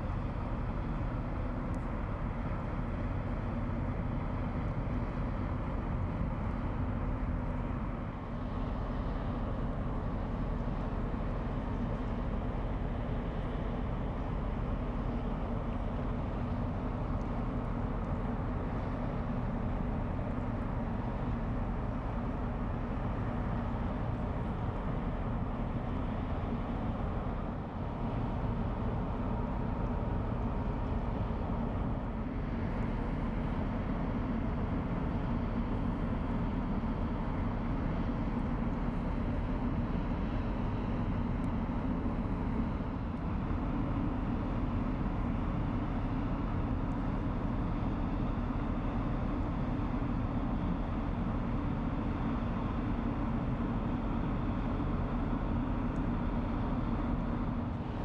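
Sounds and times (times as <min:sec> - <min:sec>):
cargo boat diesel drone: 0:00.0 - 0:58.0.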